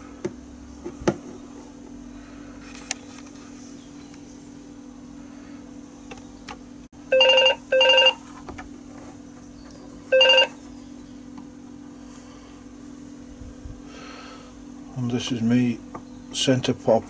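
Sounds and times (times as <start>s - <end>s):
electronic ringing tones: 7.1s - 8.2s, 10.1s - 10.6s.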